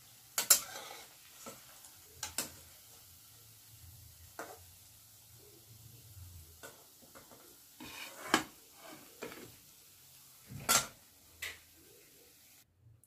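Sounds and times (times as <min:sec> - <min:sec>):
spatula scraping metal pan: 0:00.4 - 0:01.7, 0:07.8 - 0:09.6.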